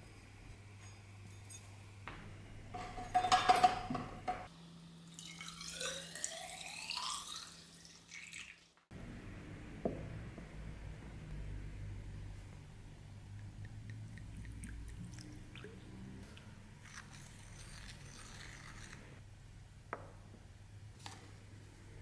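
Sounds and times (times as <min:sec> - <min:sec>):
liquid pouring into steel pipe: 0:05.1 - 0:08.7.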